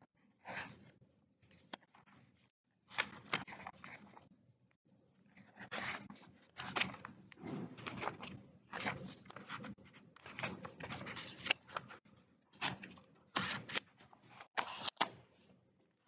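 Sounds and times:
paper rustling: 5.3s - 12.0s, 12.6s - 15.4s.

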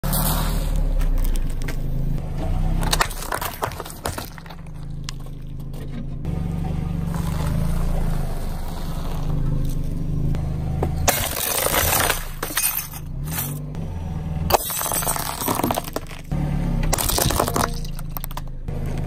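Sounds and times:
cookies crunching under tyre: 0.2s - 2.0s, 16.9s - 18.5s
glass cracking and breaking: 2.9s - 5.5s, 11.1s - 13.6s, 14.5s - 16.3s, 16.9s - 18.5s.

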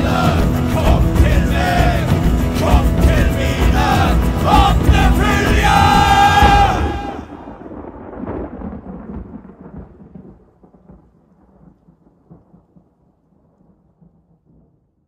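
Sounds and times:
thunder-like rumble with crackling: 4.4s - 15.0s.

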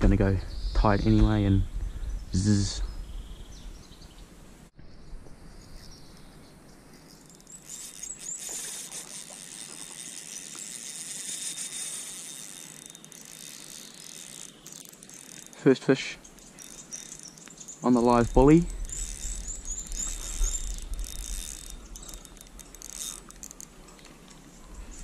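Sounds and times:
insects chirring: 5.5s - 25.0s.

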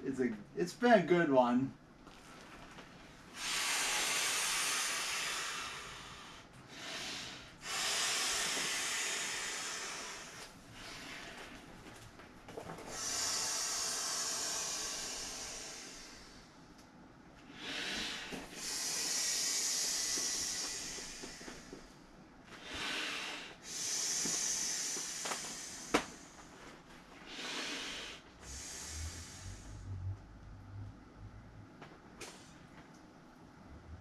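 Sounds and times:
person blowing into inflatable: 17.6s - 21.7s, 22.6s - 26.1s.

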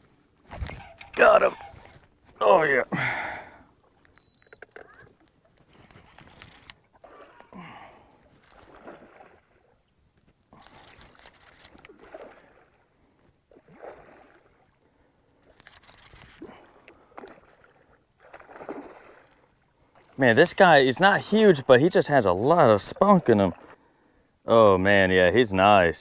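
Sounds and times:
fish thrashing and splashing: 5.6s - 9.8s, 10.5s - 12.9s, 13.5s - 14.8s, 17.1s - 20.2s.

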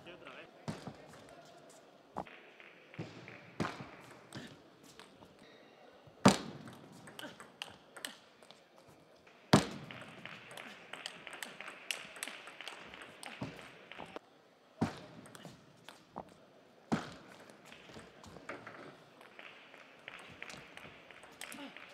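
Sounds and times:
table tennis ball clicking: 9.6s - 14.2s.

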